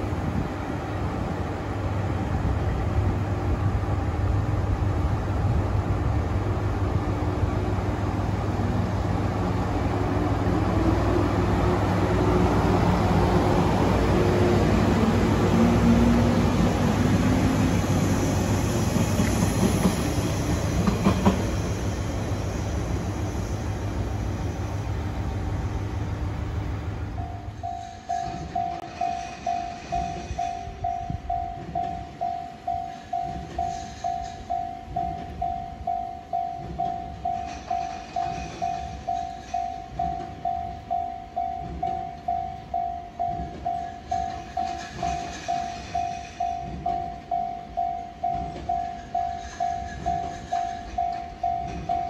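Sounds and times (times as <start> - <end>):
electric train wheels and motors: 4.0 - 52.0
rail-joint clatter: 14.7 - 23.0, 27.2 - 52.0.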